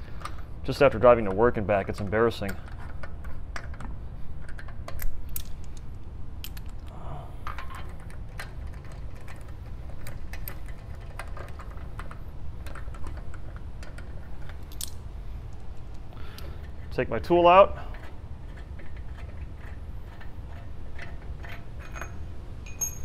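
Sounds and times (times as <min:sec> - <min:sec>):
low background hum: 0:00.0 - 0:23.0
metallic clicks of lug bolts: 0:02.3 - 0:06.9, 0:07.5 - 0:16.9.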